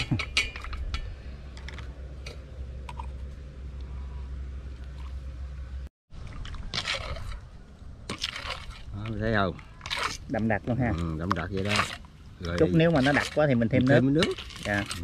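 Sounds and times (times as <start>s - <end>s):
steady low rumble: 0.0s - 11.2s.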